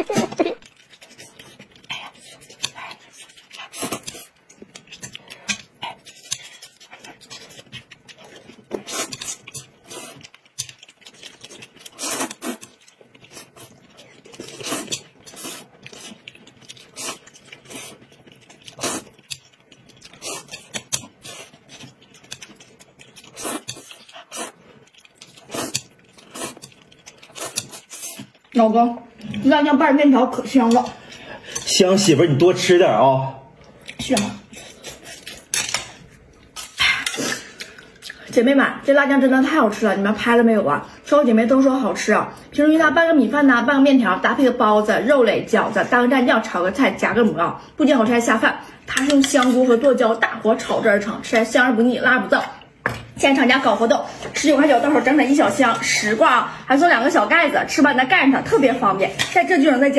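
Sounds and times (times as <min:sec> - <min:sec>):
chewing noises: 0:00.2 - 0:29.5, 0:33.6 - 0:38.4
noodles being slurped: 0:06.0 - 0:28.4.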